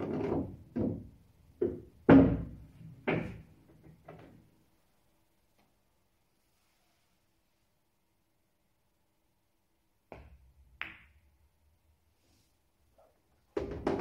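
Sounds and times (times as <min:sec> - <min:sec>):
pool balls knocking: 0:00.0 - 0:04.3, 0:13.6 - 0:14.0.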